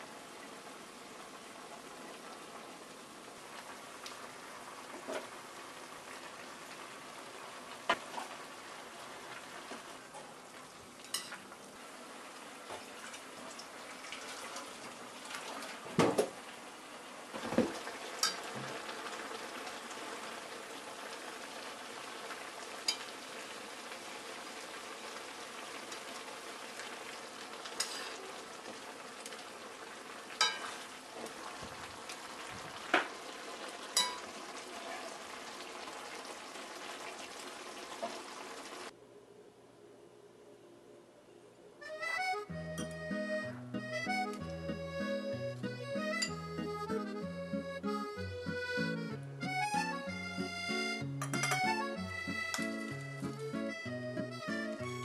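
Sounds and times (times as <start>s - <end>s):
food sizzling in frying pan: 0.0s - 38.9s
utensils clinking against pan: 11.0s - 11.4s, 18.2s - 18.4s, 27.8s - 28.2s, 30.4s - 30.8s, 34.0s - 34.2s, 51.2s - 51.8s.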